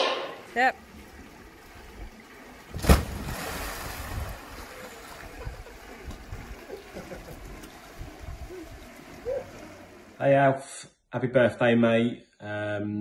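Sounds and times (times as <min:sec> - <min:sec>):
water sloshing and lapping: 0:00.2 - 0:10.2
loud splash into a pool: 0:02.7 - 0:05.2.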